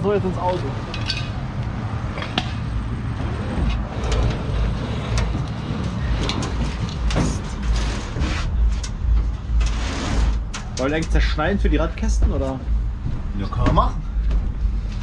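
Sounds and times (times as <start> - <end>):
rug scraping on metal floor: 3.2 - 10.8
knocks and low thumps: 10.4 - 15.0.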